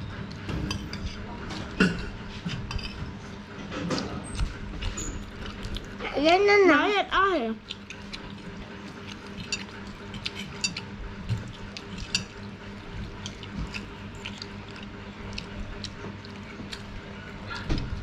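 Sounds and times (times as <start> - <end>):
steady low hum: 0.0 - 18.0
chewing and lip-smacking: 3.8 - 6.5, 7.5 - 18.0.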